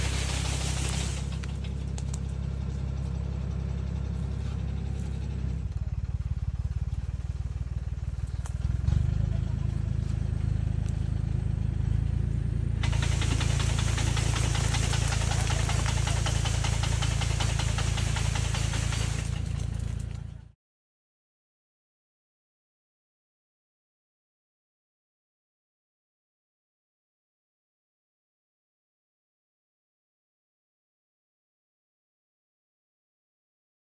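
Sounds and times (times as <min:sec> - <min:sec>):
loud steady hiss: 0:00.0 - 0:01.5, 0:12.8 - 0:19.4
tree shaker engine droning: 0:00.0 - 0:20.6.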